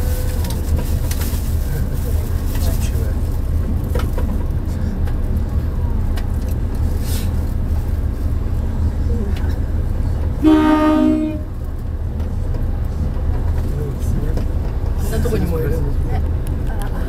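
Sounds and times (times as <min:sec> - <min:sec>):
diesel railcar rumbling: 0:00.0 - 0:17.0
train horn toot: 0:10.4 - 0:11.6.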